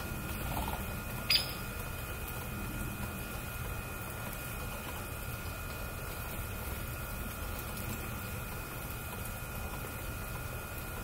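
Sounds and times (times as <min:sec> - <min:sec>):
steady background noise: 0:00.0 - 0:11.0
bird chip: 0:01.3 - 0:01.7.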